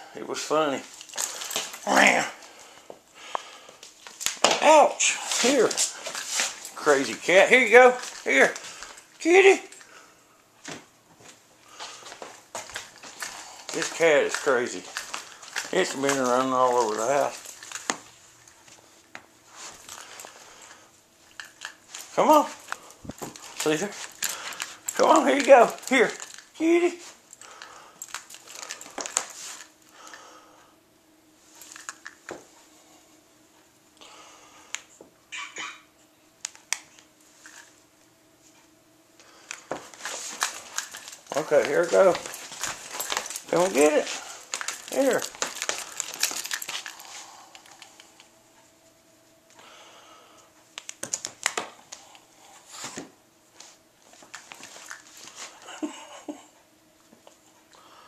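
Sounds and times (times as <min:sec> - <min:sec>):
toy rustling and crinkling: 0:00.7 - 0:02.6, 0:03.9 - 0:09.9, 0:11.2 - 0:29.8, 0:31.5 - 0:32.4, 0:36.5 - 0:37.8, 0:39.4 - 0:48.7, 0:50.8 - 0:56.0
cat claws clicking on wooden floor: 0:39.9 - 0:48.1.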